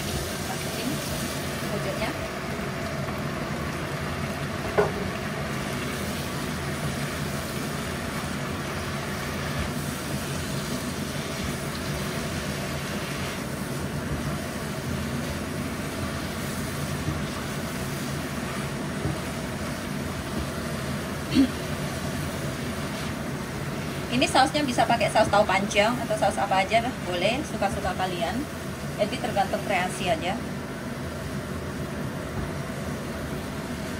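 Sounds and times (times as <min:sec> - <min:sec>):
induction hob hiss and hum: 0:00.0 - 0:33.9.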